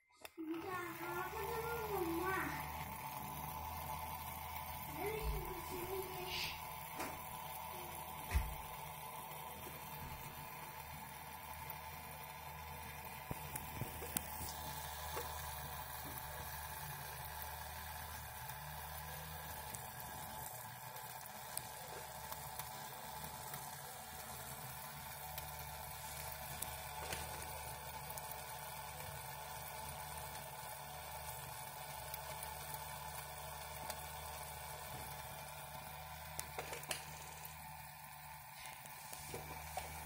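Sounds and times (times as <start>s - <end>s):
small motor whirring: 0.1s - 40.0s.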